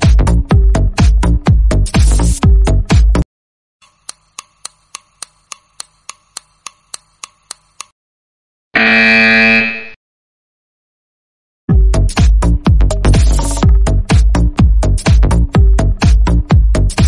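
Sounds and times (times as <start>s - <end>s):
clock ticking: 3.8s - 7.9s
loud buzzer: 8.7s - 10.0s.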